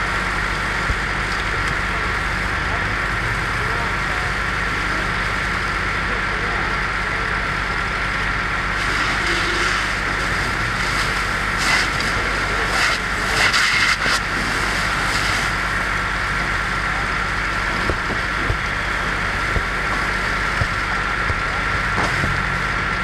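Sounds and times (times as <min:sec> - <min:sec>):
engine drone with high whine: 0:00.0 - 0:23.0
fire hose spray hissing: 0:08.8 - 0:15.9.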